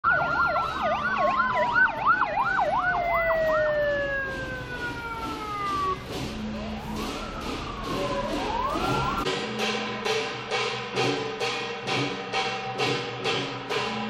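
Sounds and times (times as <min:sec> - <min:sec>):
police motorcycle sirens: 0:00.0 - 0:09.3
street traffic: 0:00.0 - 0:14.0.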